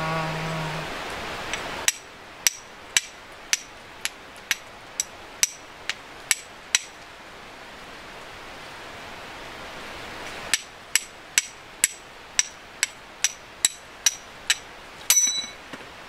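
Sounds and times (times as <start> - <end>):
flint and steel striking: 1.9 - 7.0, 10.5 - 15.7.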